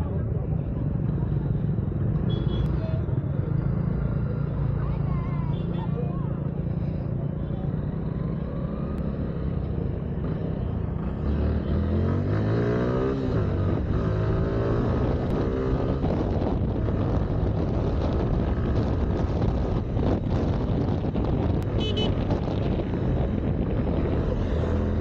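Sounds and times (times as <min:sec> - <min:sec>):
wind noise on microphone: 0:13.3 - 0:25.0.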